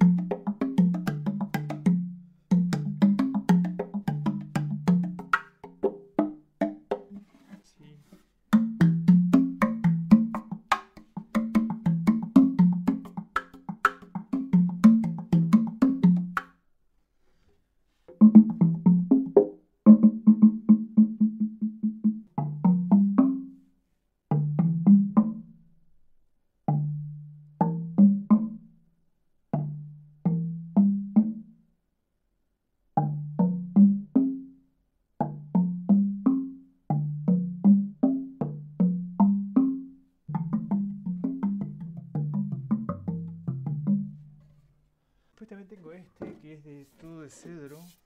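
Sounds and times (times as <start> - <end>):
wooden box drum notes: 0.0 - 16.5, 40.3 - 44.6, 45.4 - 47.8.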